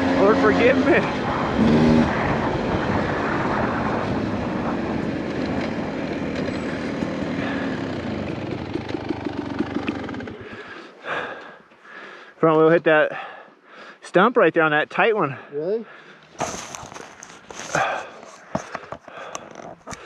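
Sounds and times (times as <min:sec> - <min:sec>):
dirt bike engine revving: 0:00.0 - 0:10.9.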